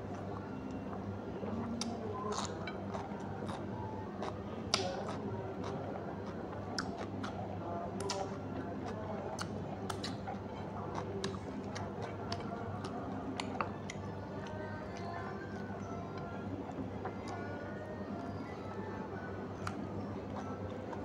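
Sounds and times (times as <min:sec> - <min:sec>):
steady low hum: 0:00.0 - 0:21.0
chewing and mouth smacks: 0:00.8 - 0:15.2, 0:19.6 - 0:21.0.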